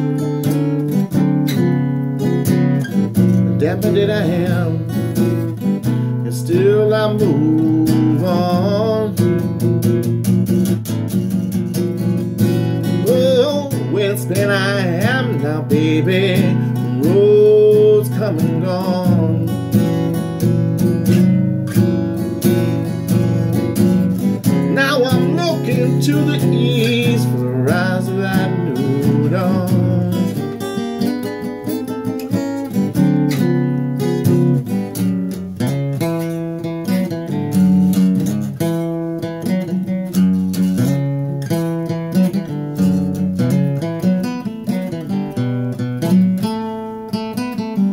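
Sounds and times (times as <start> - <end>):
acoustic guitar playing slow blues: 0.0 - 47.9
man singing: 3.2 - 9.7, 12.5 - 20.2, 24.2 - 31.5.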